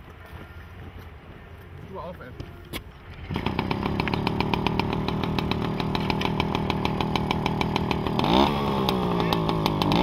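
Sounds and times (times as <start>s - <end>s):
two-stroke moped engine running: 3.0s - 10.0s.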